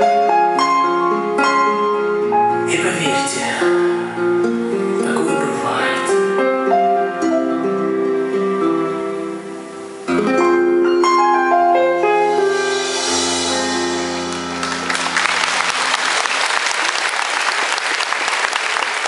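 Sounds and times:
live band closing notes: 0.0 - 19.0
audience applause: 14.1 - 19.0.

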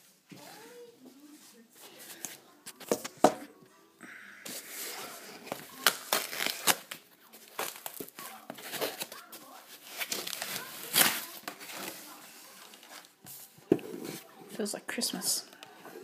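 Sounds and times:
tape tearing and crinkling: 4.6 - 13.2.

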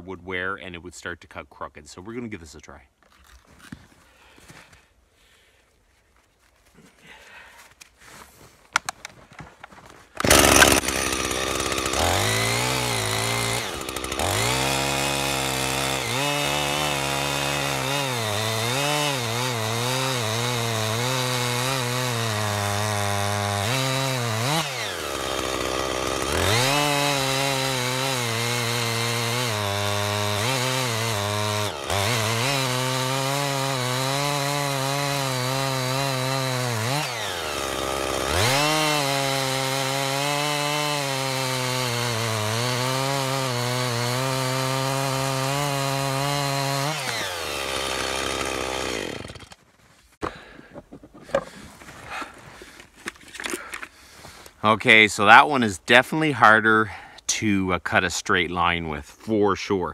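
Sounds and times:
chainsaw cutting through log: 10.2 - 49.6.

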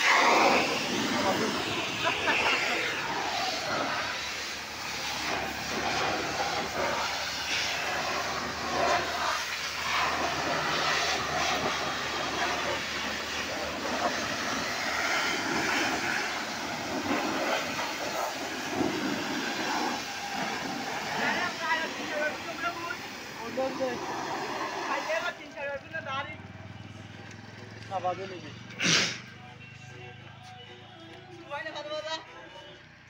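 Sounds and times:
pressure washer spraying water: 0.0 - 25.6.

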